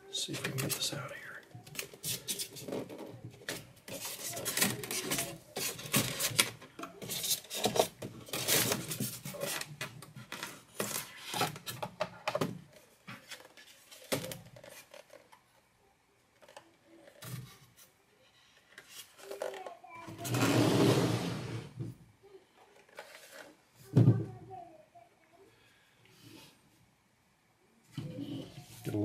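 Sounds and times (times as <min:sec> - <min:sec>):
plastic scraping against foam: 0:01.6 - 0:11.8, 0:18.8 - 0:21.7.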